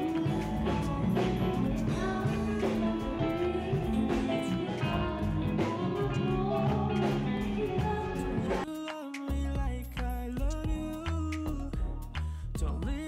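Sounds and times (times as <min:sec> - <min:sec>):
live band playing: 0:00.0 - 0:08.7
woman singing into microphone: 0:00.0 - 0:08.7.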